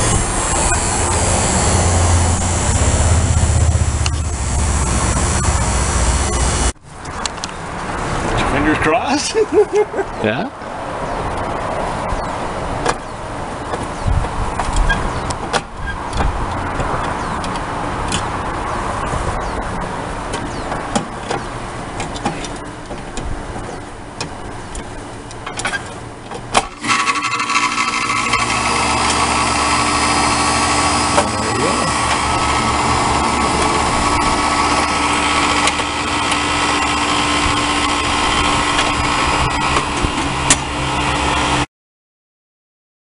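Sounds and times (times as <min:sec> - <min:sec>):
compressor humming: 0:00.0 - 0:06.8, 0:26.6 - 0:41.6
condenser fan blowing: 0:00.0 - 0:06.8, 0:26.6 - 0:41.6.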